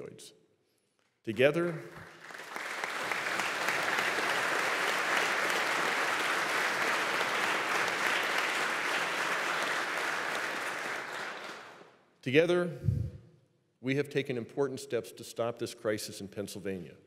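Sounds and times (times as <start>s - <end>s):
large audience applauding: 1.9s - 12.0s.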